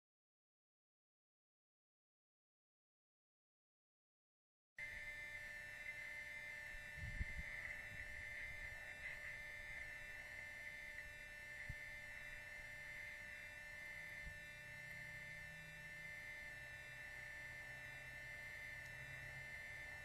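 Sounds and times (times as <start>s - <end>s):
faint buzzing hum: 4.8s - 20.0s.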